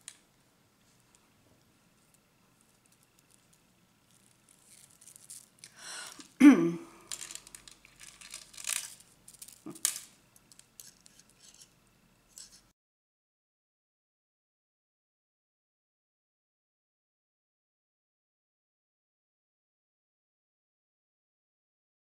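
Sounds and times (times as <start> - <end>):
beads clicking and rattling: 2.0 - 6.4, 7.1 - 11.7.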